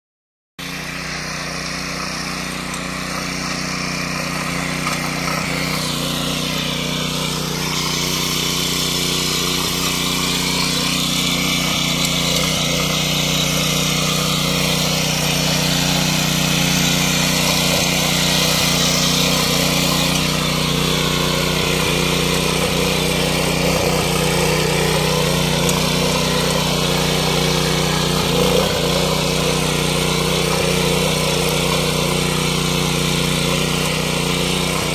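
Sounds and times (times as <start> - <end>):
tiller engine running: 0.6 - 34.9
tines churning soil: 0.6 - 34.9.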